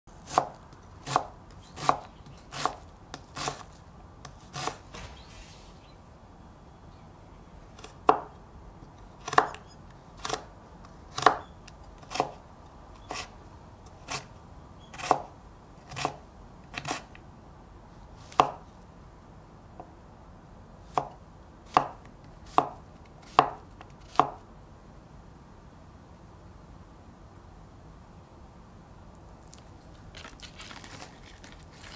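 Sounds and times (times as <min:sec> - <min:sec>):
knife chopping on wooden board: 0:00.3 - 0:05.4, 0:09.2 - 0:09.6, 0:20.9 - 0:24.4.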